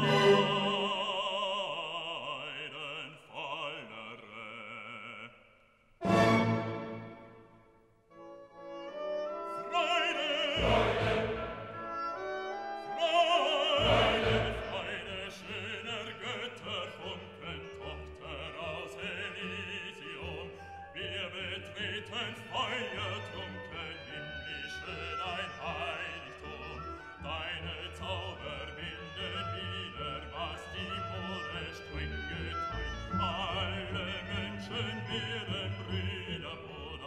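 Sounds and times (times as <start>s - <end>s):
orchestra playing: 0.0s - 1.1s, 6.0s - 7.6s, 8.6s - 16.4s
operatic singing voice: 0.0s - 7.1s, 9.5s - 12.0s, 12.8s - 37.0s.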